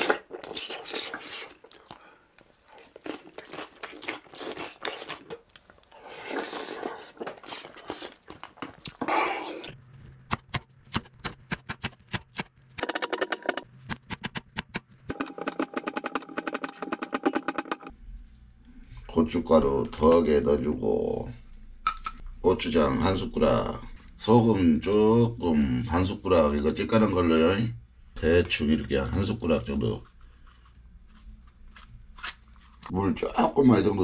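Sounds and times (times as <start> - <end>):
chewing and slurping: 0.0 - 2.0, 2.6 - 9.7.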